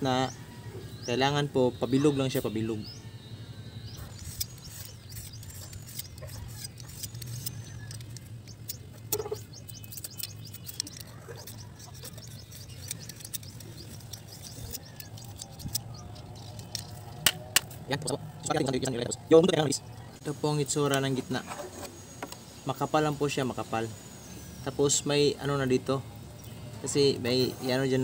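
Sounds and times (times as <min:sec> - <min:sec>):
birds chirping: 0:00.0 - 0:28.0
blade scraping bamboo: 0:04.0 - 0:18.1, 0:21.2 - 0:22.0.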